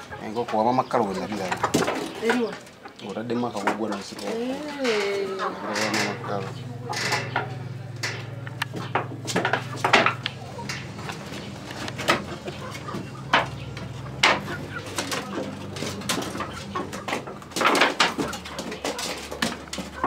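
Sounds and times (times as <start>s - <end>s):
hens clucking: 0.0s - 20.0s
steady low hum: 5.3s - 18.7s.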